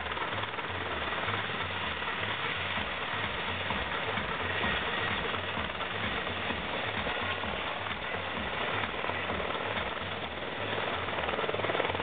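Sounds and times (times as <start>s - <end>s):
helicopter engine running: 0.0s - 12.0s.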